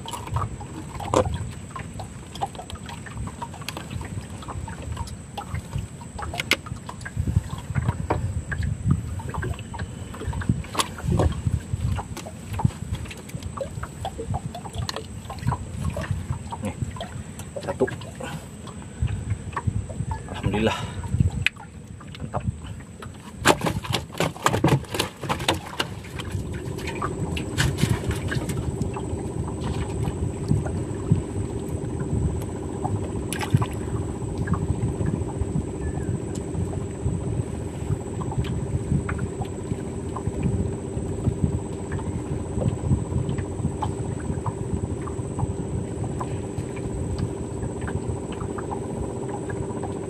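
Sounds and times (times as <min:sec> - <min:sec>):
boat motor running: 0:00.0 - 0:50.0
water sounds: 0:00.0 - 0:50.0.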